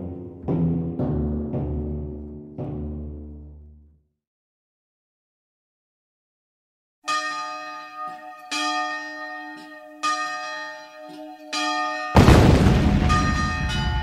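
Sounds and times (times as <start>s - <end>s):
church bell tolling: 7.0s - 14.0s.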